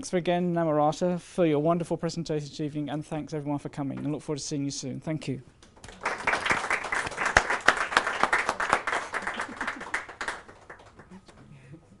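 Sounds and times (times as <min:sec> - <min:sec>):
audience applauding: 0:05.8 - 0:11.2.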